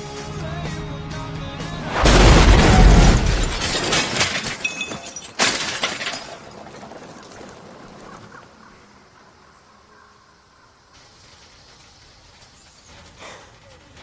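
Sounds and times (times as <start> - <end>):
car crash impact: 1.7 - 7.8
debris clattering: 1.7 - 8.4.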